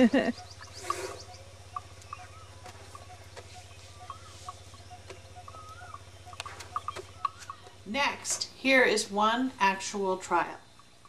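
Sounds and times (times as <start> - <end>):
steady low hum: 0.0 - 11.0
faint chirping animal calls: 0.1 - 8.7.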